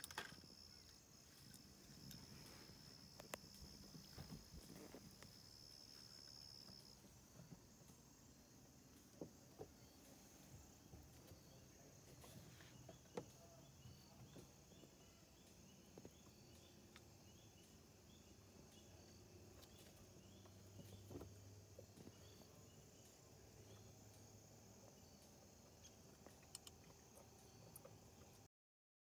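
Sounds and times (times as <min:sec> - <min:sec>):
steady high hiss: 0:00.0 - 0:27.6
crickets chirping: 0:00.0 - 0:28.5
faint clicks: 0:26.2 - 0:27.0.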